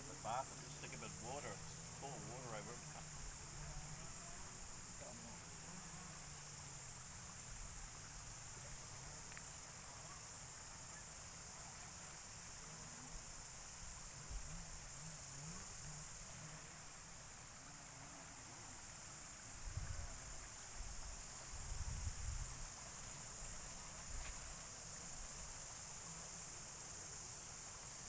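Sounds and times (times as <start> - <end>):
high-pitched hiss: 0.0 - 28.0
wind rumble on microphone: 19.6 - 22.7.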